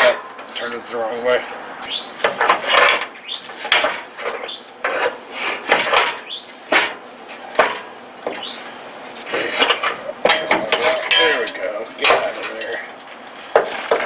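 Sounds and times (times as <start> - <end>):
metal scraping and clinking: 2.2 - 7.9, 9.2 - 12.9.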